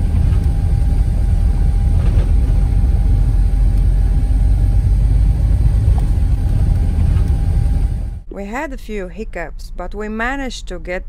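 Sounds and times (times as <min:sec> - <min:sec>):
van engine and road rumble: 0:00.0 - 0:08.3.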